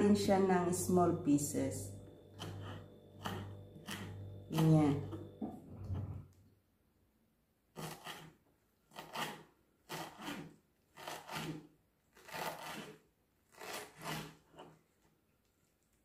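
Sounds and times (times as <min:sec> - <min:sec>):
knife cutting on wooden board: 0:07.8 - 0:14.8.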